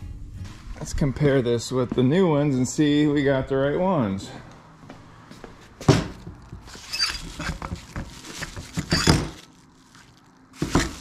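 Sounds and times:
bubble wrap crinkling: 6.1s - 11.0s.

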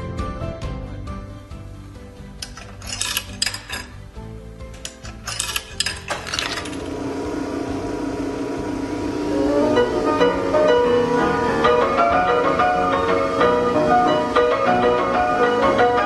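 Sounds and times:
player piano playing: 1.6s - 16.0s
coins clinking through coin mechanism: 2.4s - 6.9s.

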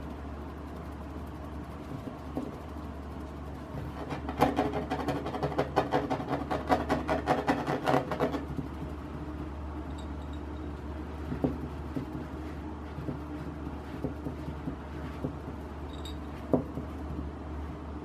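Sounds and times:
steady low hum: 0.0s - 18.0s
fingers scratching on a table: 3.8s - 9.0s, 11.1s - 17.3s.

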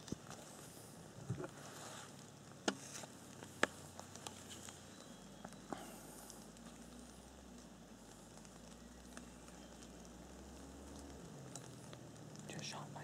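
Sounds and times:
faint outdoor hiss: 0.0s - 13.0s
small clicks: 3.3s - 12.6s.

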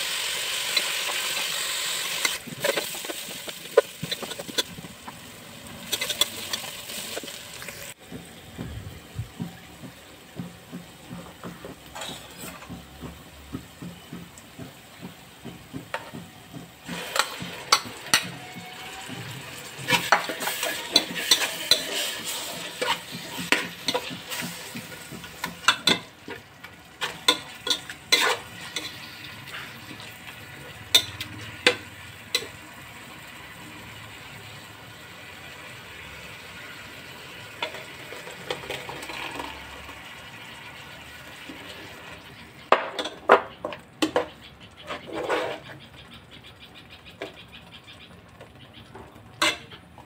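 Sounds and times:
onions sizzling in hot oil: 0.0s - 44.2s
metal spoon scraping a pot: 0.5s - 7.9s, 11.9s - 12.8s, 16.8s - 26.4s, 27.0s - 32.6s, 44.0s - 45.9s, 49.4s - 49.8s.

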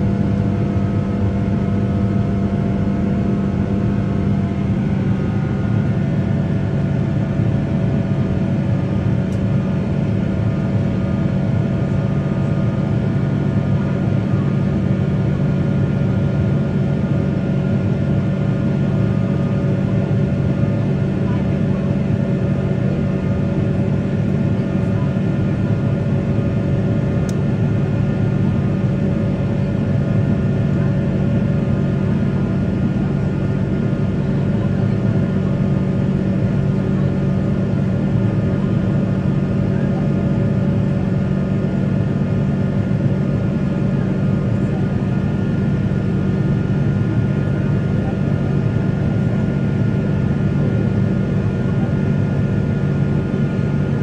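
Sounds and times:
airplane cabin drone: 0.0s - 54.0s.

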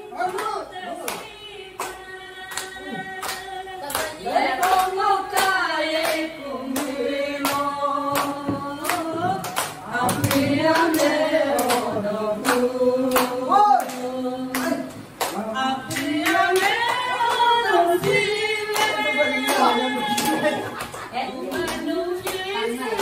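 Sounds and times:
group clapping along: 0.0s - 23.0s
woman singing into a microphone: 0.0s - 23.0s.

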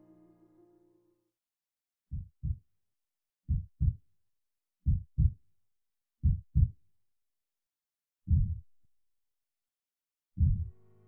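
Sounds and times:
heartbeat thumps: 2.1s - 2.6s, 3.5s - 4.0s, 4.9s - 5.4s, 6.2s - 6.8s, 8.3s - 8.6s, 10.4s - 10.8s.

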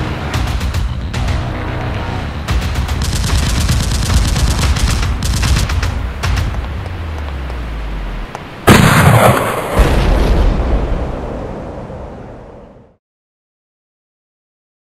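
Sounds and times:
machine-gun fire: 2.6s - 6.5s
loud blast: 8.7s - 11.7s.

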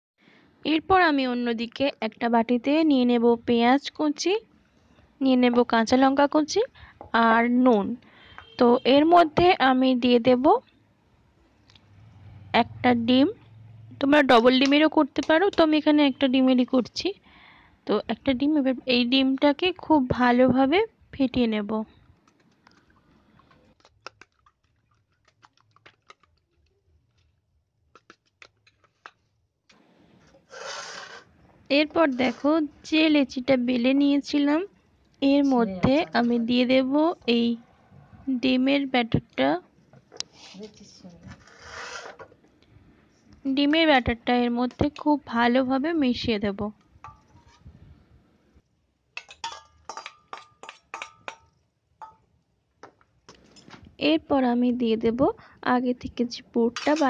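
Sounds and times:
spoon clicking against metal bowl: 49.2s - 52.2s.

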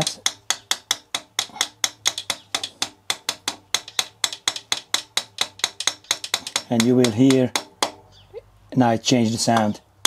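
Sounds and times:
hammer tapping on metal: 0.0s - 8.0s, 9.4s - 9.8s.

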